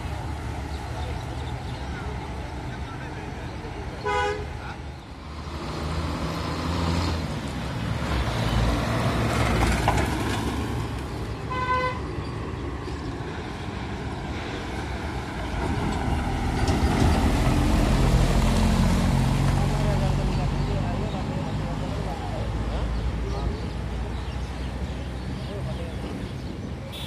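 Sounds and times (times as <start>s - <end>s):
truck horn toot: 4.0s - 4.6s, 11.5s - 12.0s
dump truck diesel engine approaching: 5.0s - 11.4s, 12.4s - 24.2s
truck diesel engine driving past: 5.1s - 10.9s.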